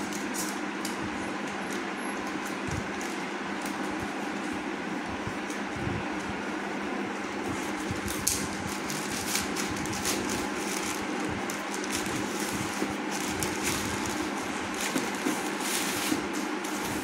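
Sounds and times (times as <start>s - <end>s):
steady background hum: 0.0s - 17.0s
plastic bag crinkling and tearing: 8.0s - 17.0s.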